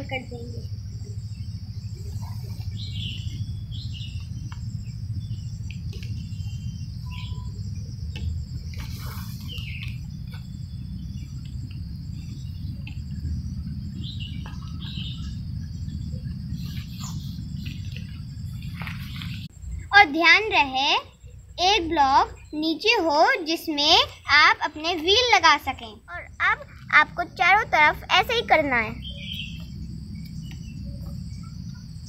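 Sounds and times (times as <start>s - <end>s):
low rumble: 0.0s - 20.0s, 25.9s - 32.0s
insects trilling: 0.0s - 32.0s
pulsing insect chirp: 0.0s - 32.0s
short bird calls: 8.7s - 10.4s.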